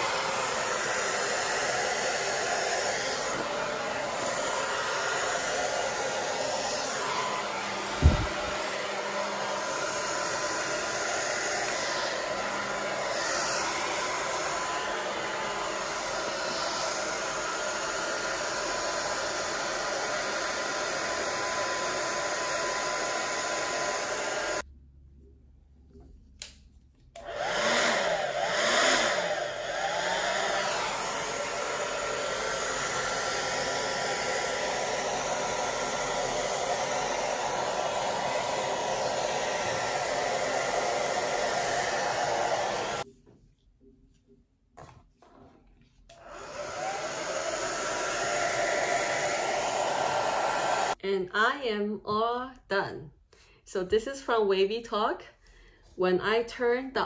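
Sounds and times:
hair dryer blowing: 0:00.0 - 0:24.7, 0:27.2 - 0:43.1, 0:46.1 - 0:51.0.

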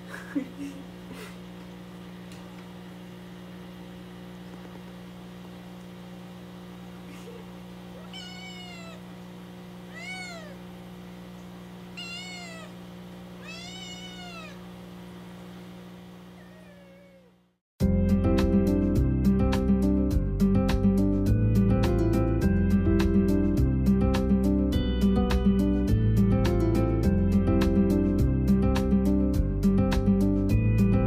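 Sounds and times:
steady low hum: 0:00.0 - 0:17.6
kitten meowing: 0:08.0 - 0:09.1, 0:09.9 - 0:10.7, 0:11.9 - 0:12.8, 0:13.4 - 0:14.7, 0:16.4 - 0:17.4.

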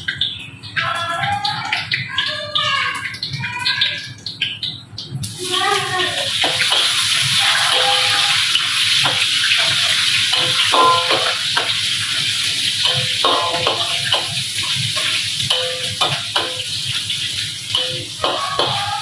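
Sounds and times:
vegetables sizzling in hot oil: 0:05.2 - 0:19.0
metal spatula scraping wok: 0:06.5 - 0:11.7, 0:17.8 - 0:19.0.

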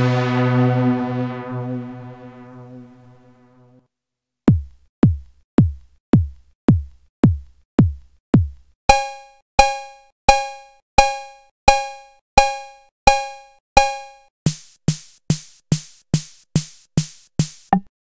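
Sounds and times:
synthesized kick drum: 0:00.0 - 0:03.0, 0:04.5 - 0:08.6
low buzzy synth note: 0:00.0 - 0:03.7.

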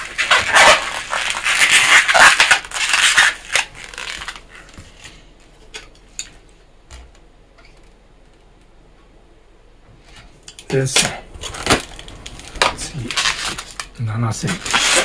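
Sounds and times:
balloon squeaking and rubbing: 0:00.0 - 0:04.7, 0:12.9 - 0:13.8, 0:14.4 - 0:15.0.

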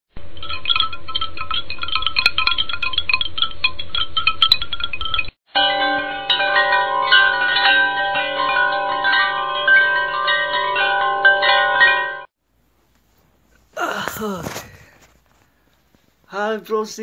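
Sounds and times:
bell-like chime music: 0:05.5 - 0:12.3.

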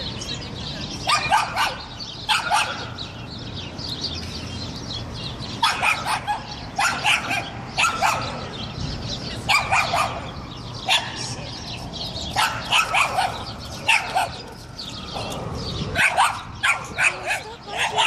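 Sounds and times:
dog barking: 0:01.0 - 0:03.0, 0:05.6 - 0:08.4, 0:09.5 - 0:11.2, 0:12.3 - 0:14.4, 0:15.9 - 0:18.0.

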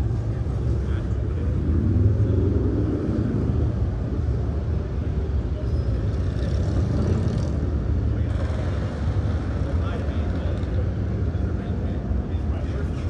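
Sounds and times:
motorcycle engines rumbling: 0:00.0 - 0:13.0.

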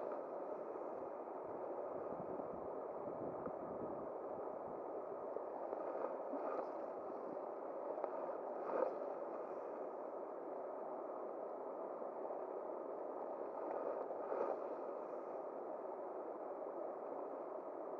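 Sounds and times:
faint clicks: 0:07.8 - 0:09.9, 0:13.4 - 0:15.0.

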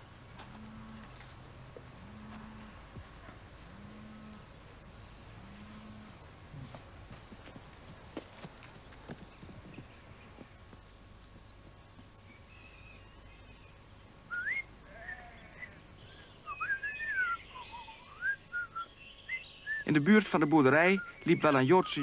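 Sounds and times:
bird chirping: 0:08.6 - 0:22.0
boy whistling a melody: 0:14.3 - 0:14.6, 0:16.6 - 0:17.4, 0:18.1 - 0:18.9.

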